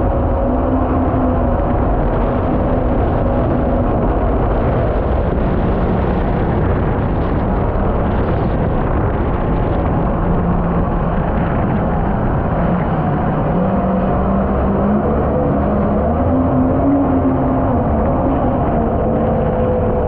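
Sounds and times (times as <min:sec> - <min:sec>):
jet boat engine running: 0:00.0 - 0:20.0
rush of water: 0:00.0 - 0:20.0
wind noise: 0:00.0 - 0:20.0.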